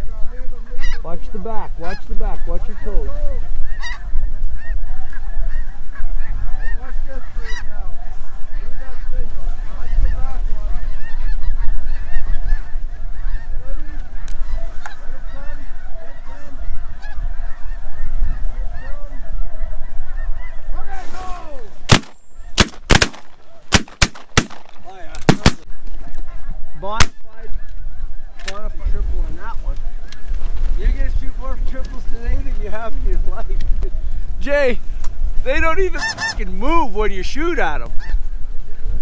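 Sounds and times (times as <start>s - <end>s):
wind on microphone: 0.0s - 39.0s
geese honking: 0.6s - 21.3s, 21.9s - 32.5s, 35.5s - 38.9s
shotgun shots: 21.9s - 25.6s.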